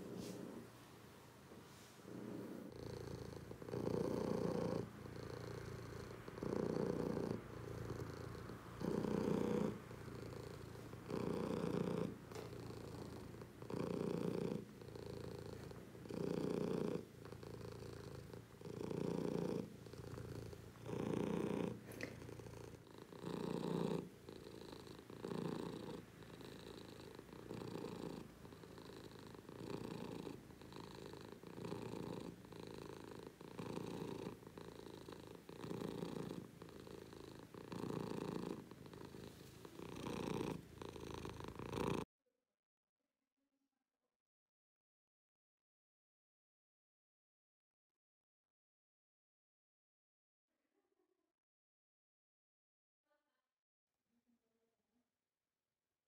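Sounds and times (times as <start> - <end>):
cat purring: 0.0 - 42.1.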